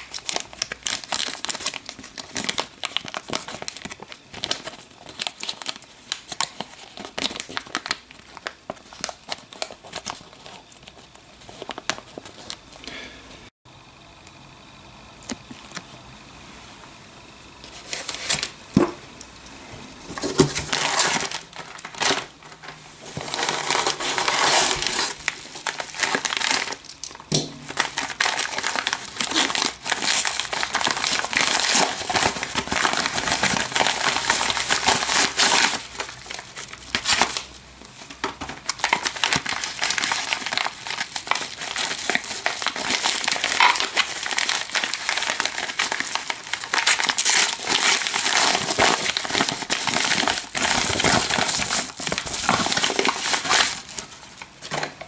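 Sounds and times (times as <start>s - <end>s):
paper packaging rustling: 0.0s - 12.8s, 17.6s - 18.9s, 19.9s - 54.8s.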